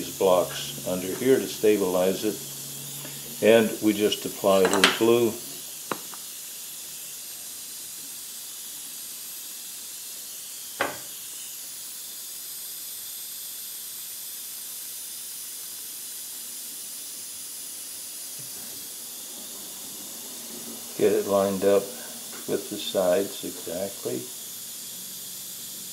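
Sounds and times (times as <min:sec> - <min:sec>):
steady high hiss: 0:00.0 - 0:25.9.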